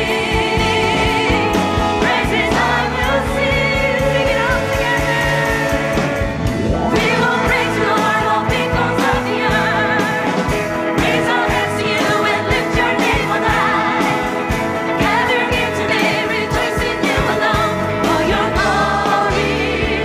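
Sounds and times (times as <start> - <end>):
electric and acoustic guitars: 0.0 - 20.0
singers singing together: 0.0 - 20.0.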